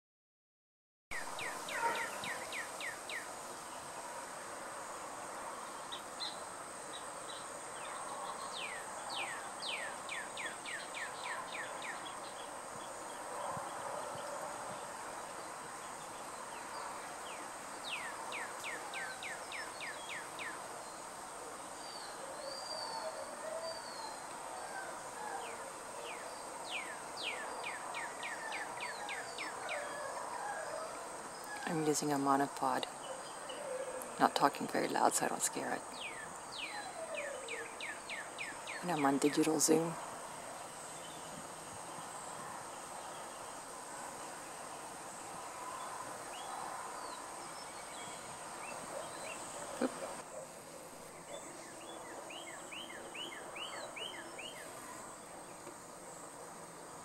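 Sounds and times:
high insect drone: 1.2s - 57.0s
bird chirps: 51.1s - 54.8s.

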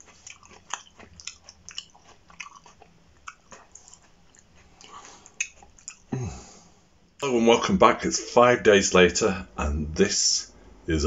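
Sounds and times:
person chewing with wet mouth clicks: 0.0s - 6.1s.

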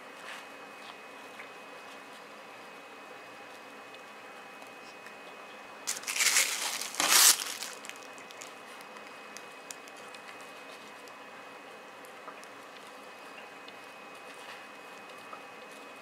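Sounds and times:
plastic packaging crinkling: 5.9s - 10.4s.

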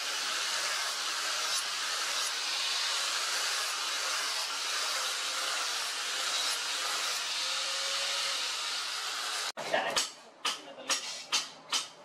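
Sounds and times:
angle grinder grinding steel: 0.0s - 9.5s.

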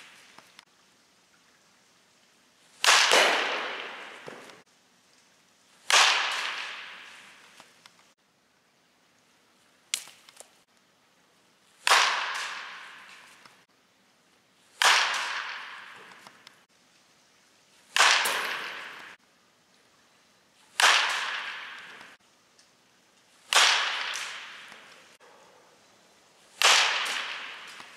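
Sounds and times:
baseball bat cracking ball: 2.8s - 4.6s, 5.8s - 7.7s, 11.8s - 13.6s, 14.8s - 16.6s, 17.9s - 19.2s, 20.7s - 22.2s, 23.5s - 25.2s, 26.6s - 27.9s.

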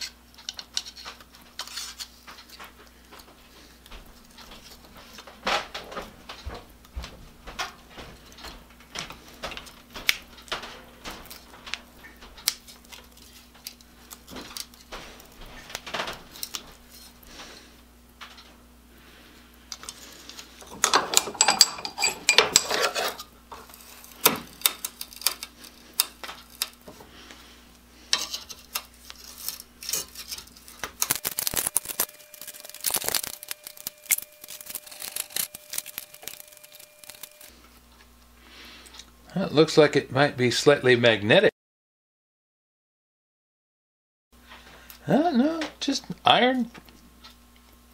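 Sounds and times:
pliers clicking and scraping metal: 19.7s - 26.9s, 28.1s - 37.5s.

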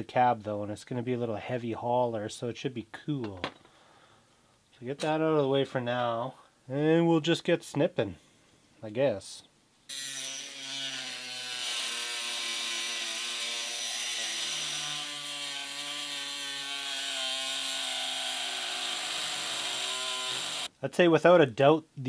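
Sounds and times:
rotary tool cutting metal: 9.9s - 20.7s.

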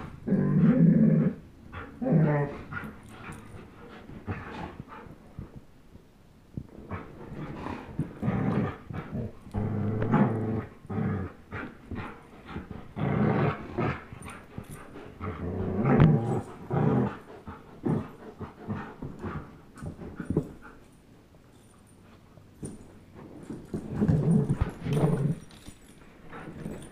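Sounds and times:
dogs play-growling: 0.0s - 5.7s, 6.6s - 26.9s
dogs scuffling: 18.8s - 26.9s.

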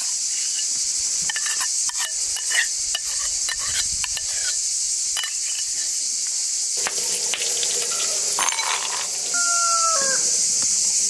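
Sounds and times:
insects chorus: 0.0s - 11.0s
spoon scraping bowl: 7.9s - 9.1s.

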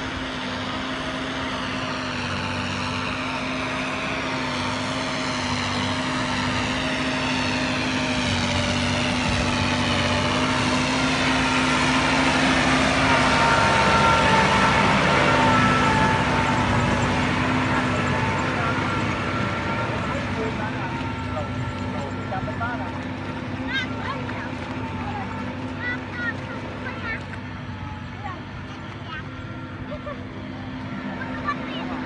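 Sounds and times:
engine running: 0.0s - 32.0s.

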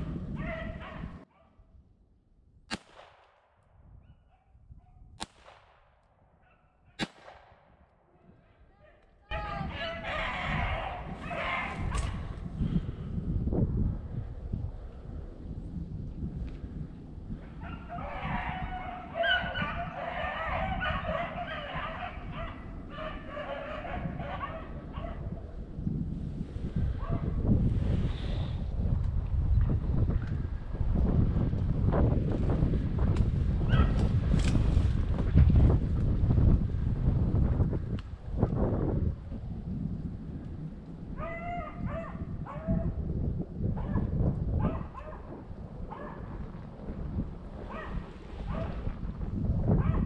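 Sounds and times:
wind buffeting microphone: 0.0s - 50.0s
handgun shots: 2.7s - 3.4s, 5.2s - 5.8s, 7.0s - 7.6s
dogs baying: 9.8s - 12.2s, 17.6s - 25.3s, 41.2s - 42.9s.

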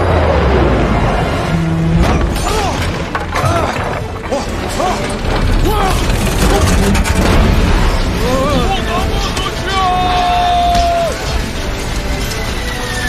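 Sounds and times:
dramatic music: 0.0s - 13.0s
crashing impacts: 1.9s - 12.5s
rising and falling squeals: 10.0s - 13.0s.

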